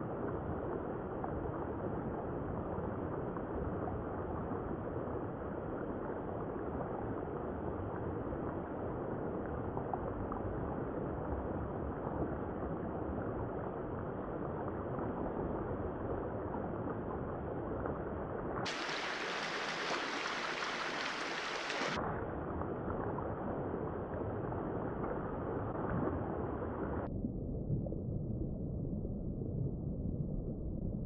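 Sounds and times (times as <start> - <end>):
creek water rushing: 18.7 - 22.0.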